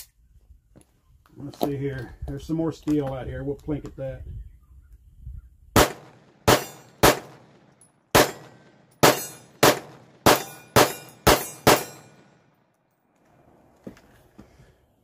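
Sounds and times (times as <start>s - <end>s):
pistol shots: 5.8s - 12.4s.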